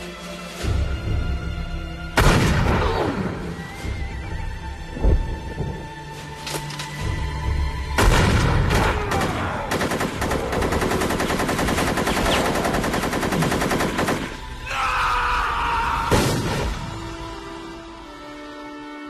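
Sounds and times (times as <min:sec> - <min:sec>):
gunshots: 0:08.0 - 0:14.5
automatic gunfire: 0:08.8 - 0:14.4.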